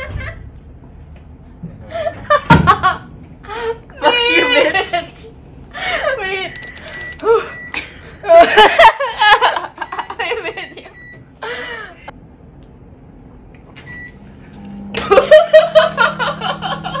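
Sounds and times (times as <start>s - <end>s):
short high beeps: 6.6s - 7.2s
women laughing: 8.2s - 10.8s.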